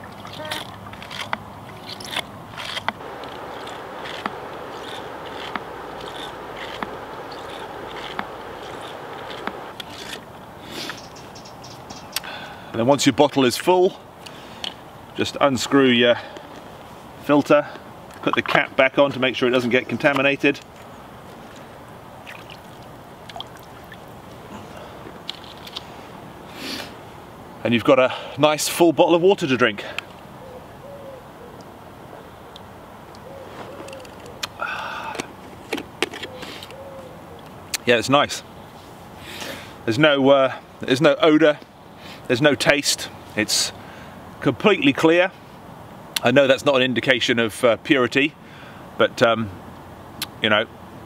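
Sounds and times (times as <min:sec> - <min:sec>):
river water rushing: 0:03.0 - 0:10.6.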